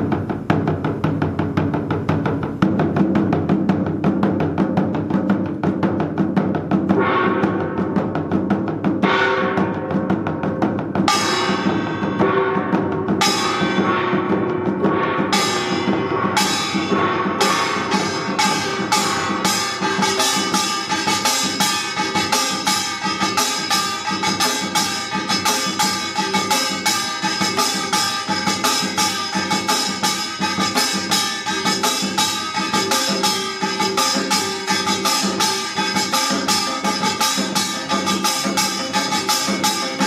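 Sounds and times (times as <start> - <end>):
drums playing dense rhythm: 0.0 - 40.0
ringing metal gong strokes: 9.0 - 40.0.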